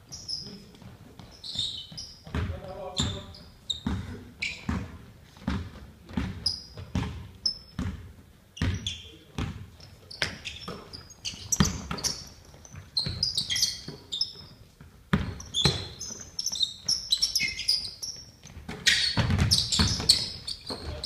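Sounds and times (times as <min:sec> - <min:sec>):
sneakers squeaking: 0:00.0 - 0:21.0
basketball bouncing on wooden floor: 0:00.8 - 0:21.0.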